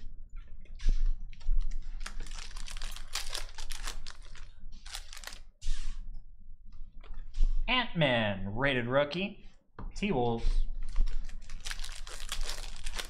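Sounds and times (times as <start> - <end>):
foil pack crinkling: 1.6 - 5.5, 10.9 - 13.0.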